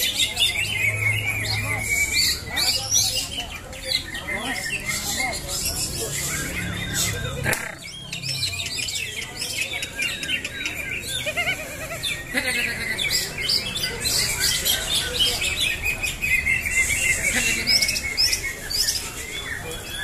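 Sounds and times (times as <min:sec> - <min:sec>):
caged birds singing: 0:00.0 - 0:20.0.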